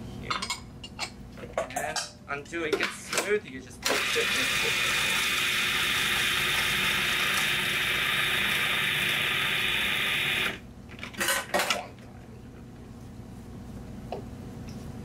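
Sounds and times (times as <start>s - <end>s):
food processor running: 3.8s - 10.6s.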